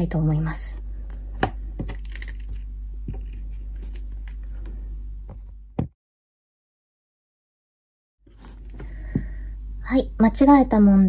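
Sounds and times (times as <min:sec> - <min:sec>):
steady low hum: 0:00.0 - 0:06.0, 0:08.3 - 0:11.0
paper and pens handled on desk: 0:01.4 - 0:04.7.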